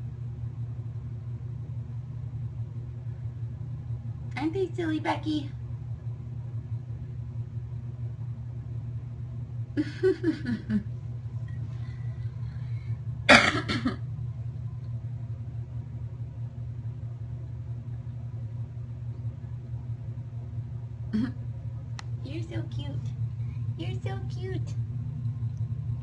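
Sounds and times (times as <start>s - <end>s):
steady low hum: 0.0s - 26.0s
breathy chuckle: 9.8s - 10.9s
person coughing: 13.3s - 14.0s, 21.2s - 21.4s.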